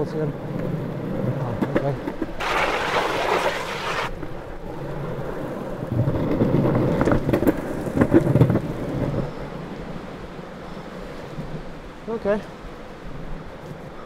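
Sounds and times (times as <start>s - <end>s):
longboard wheels rumbling: 0.0s - 14.0s
wheels clacking over cracks: 0.4s - 9.3s
scraping hiss: 2.4s - 4.1s.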